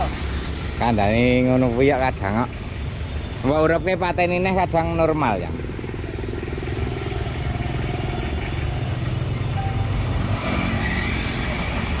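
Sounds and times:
small engine idling: 2.5s - 10.0s
motorcycle passing: 4.2s - 12.0s.

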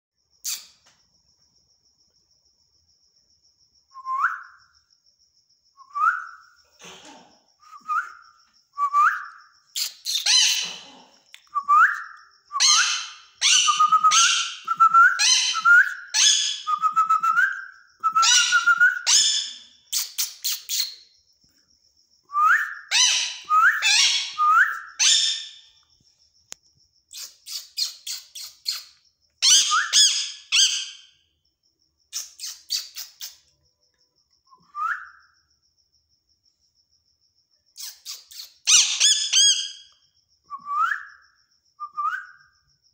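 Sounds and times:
parakeet screechy squawks: 10.0s - 10.8s, 12.6s - 14.6s, 15.2s - 15.6s, 22.9s - 24.4s, 37.8s - 39.7s.

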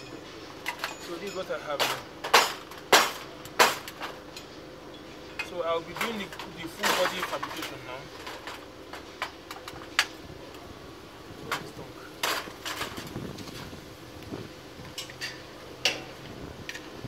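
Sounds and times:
metal pipes clinking: 0.0s - 10.2s.

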